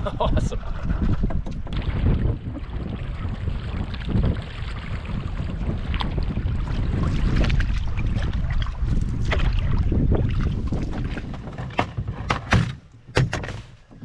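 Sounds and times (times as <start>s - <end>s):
wind buffeting microphone: 0.0s - 14.0s
water splashing against canoe: 0.6s - 14.0s.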